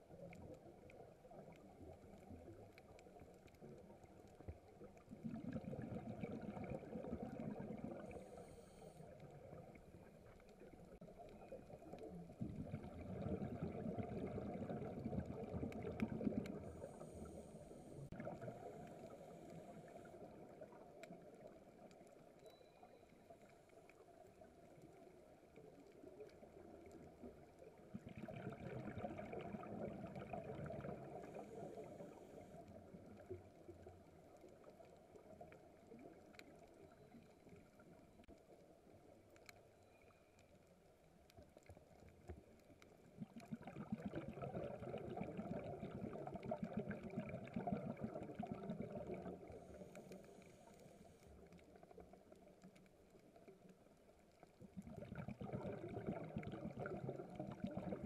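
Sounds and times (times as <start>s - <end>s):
faint crackle and clicks: 0.0s - 58.0s
air bubbling underwater: 43.4s - 49.4s, 54.8s - 58.0s.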